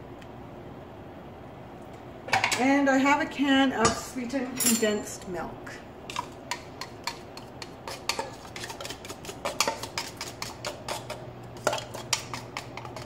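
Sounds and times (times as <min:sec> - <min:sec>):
knife scraping tin can: 0:07.6 - 0:13.0.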